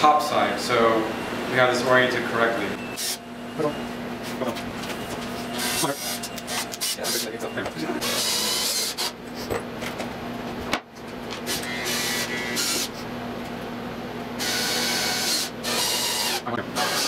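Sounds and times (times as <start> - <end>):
cordless drill motor whirring: 8.0 - 9.2, 11.5 - 13.0, 14.4 - 17.0.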